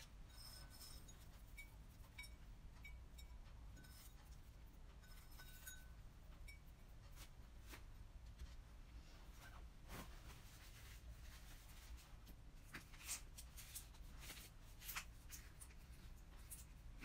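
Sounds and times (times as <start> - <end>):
small clicks and clinks: 0.2 - 6.7.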